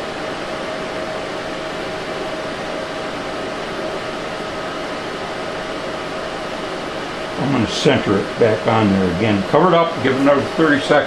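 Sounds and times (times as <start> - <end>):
constant mid-pitched hum: 0.0 - 11.0
steady fan-like noise: 0.0 - 11.0.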